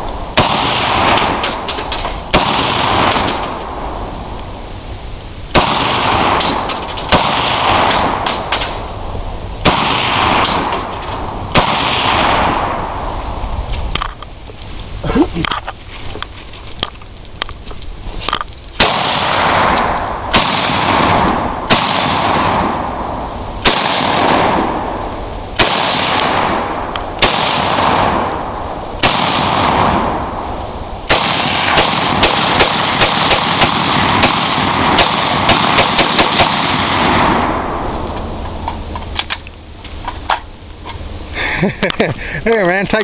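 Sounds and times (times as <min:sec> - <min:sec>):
rifle shots echoing: 0:00.3 - 0:04.0, 0:05.5 - 0:09.0, 0:09.6 - 0:13.2, 0:18.8 - 0:38.0.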